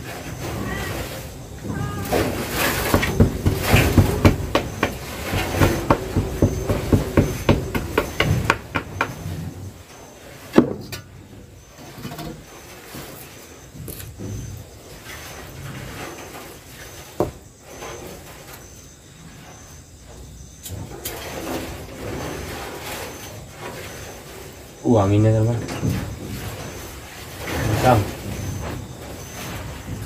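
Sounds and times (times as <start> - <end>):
wooden knocks and cracks: 1.6 - 9.7.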